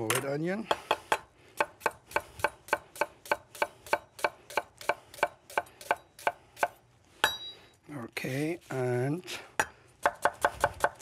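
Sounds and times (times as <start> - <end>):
knife chopping on wooden board: 9.6 - 11.0.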